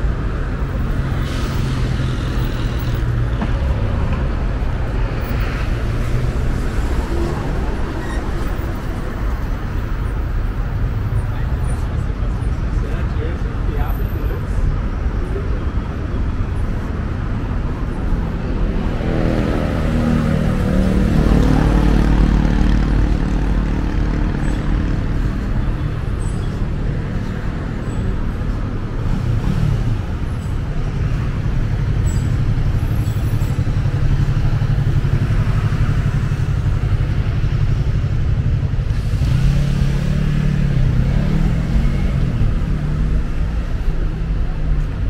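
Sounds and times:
cars and buses passing: 0.0 - 45.0
motorcycle engine idling and revving: 14.6 - 45.0.

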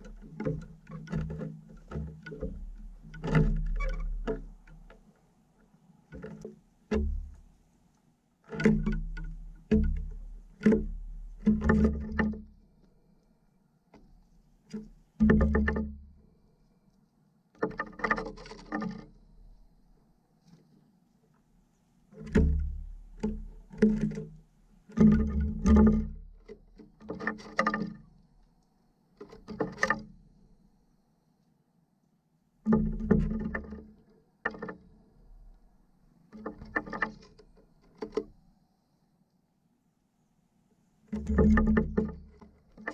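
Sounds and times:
bird pecking on wooden feeder: 6.1 - 7.4, 8.5 - 12.4, 14.7 - 16.0, 22.2 - 26.2, 41.1 - 42.9
bird knocking on wooden tray: 8.6 - 12.3, 15.2 - 15.9, 41.2 - 42.9.

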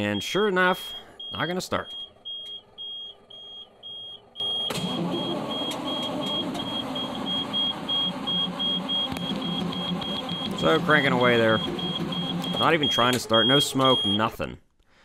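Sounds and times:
dashboard warning buzzer beeping: 0.2 - 14.3
diesel engine cranking: 3.2 - 14.0.

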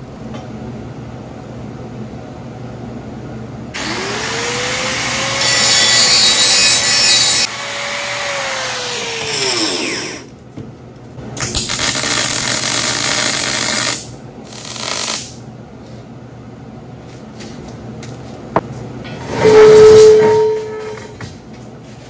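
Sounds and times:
angle grinder spinning down: 3.8 - 10.3
welder arc crackling: 11.4 - 15.4.

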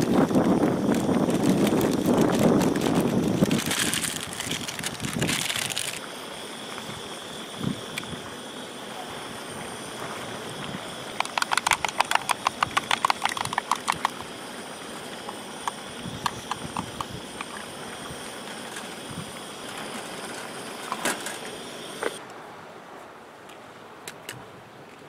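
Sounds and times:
gas stove burner hissing: 0.0 - 22.2
rapid light clicking: 11.2 - 14.3, 15.2 - 17.6.

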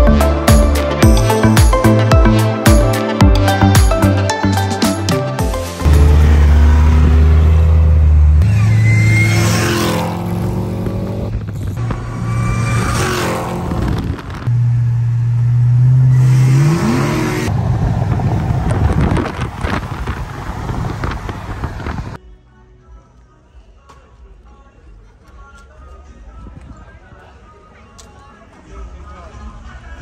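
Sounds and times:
music with deep bass: 0.0 - 8.5
cars revving and whooshing past: 5.8 - 22.2.

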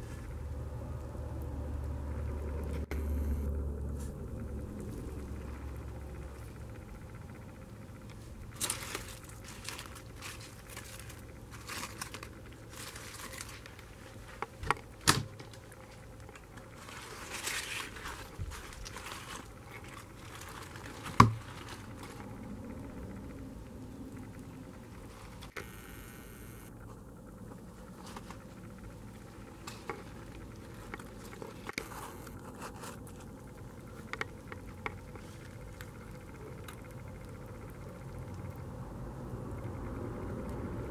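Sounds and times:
low steady hum: 0.0 - 40.9
faint clicks and crackles: 1.0 - 40.9
cardboard rustling and crinkling: 8.5 - 22.4.

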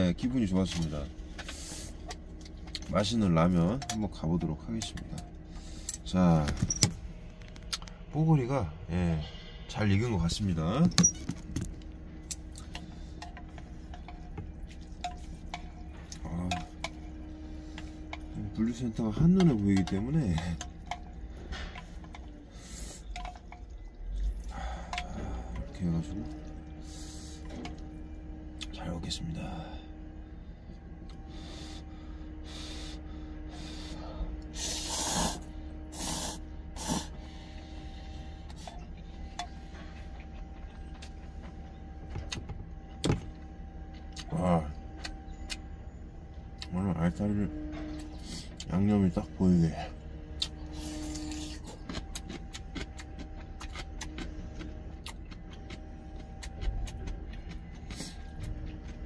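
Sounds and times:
low steady hum: 0.0 - 59.0
man slurping noodles: 34.6 - 37.2
crisp chewing crunches: 50.2 - 59.0.

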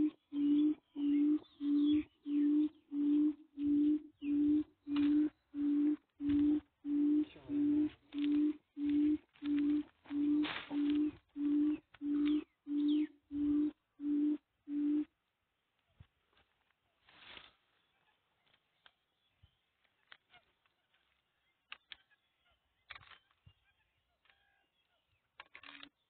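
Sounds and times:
low repeating beep: 0.0 - 15.1.

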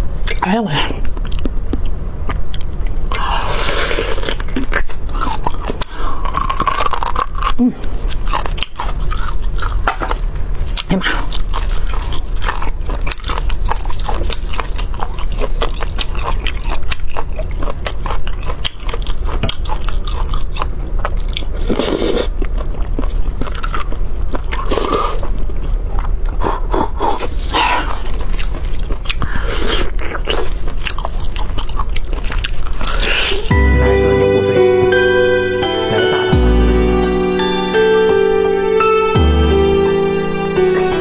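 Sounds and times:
wet chewing and lip smacking: 1.0 - 33.5.

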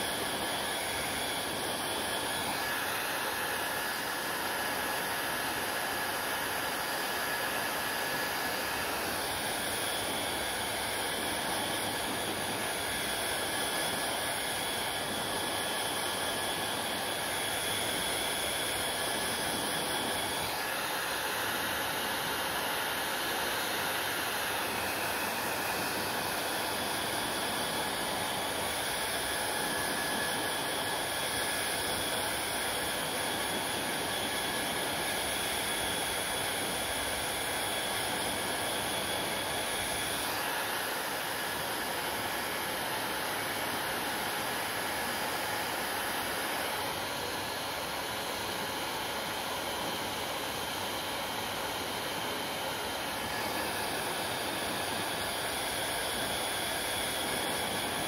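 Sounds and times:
hair dryer blowing: 0.0 - 58.0.

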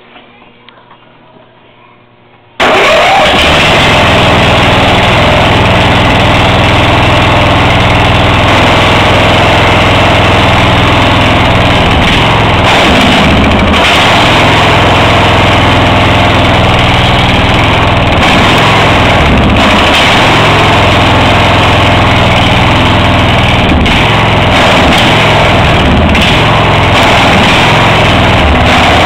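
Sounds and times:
riding mower engine running: 2.6 - 29.0.

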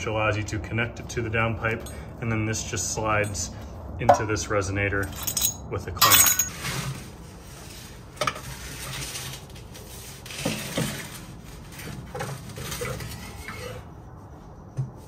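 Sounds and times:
metal exhaust pipe clanking: 3.1 - 6.6.

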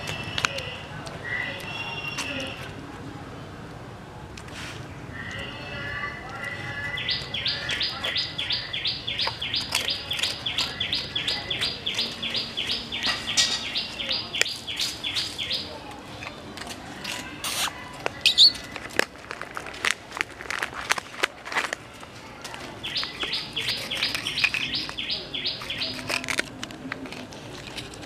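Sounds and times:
dog chewing biscuits: 6.4 - 13.2, 14.2 - 28.0
bird chirping: 6.8 - 15.9, 18.2 - 18.7, 22.8 - 26.4.

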